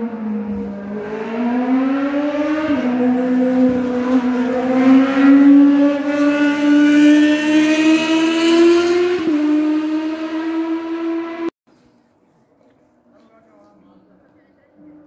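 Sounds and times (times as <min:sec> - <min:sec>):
race car engine accelerating: 0:00.0 - 0:11.5.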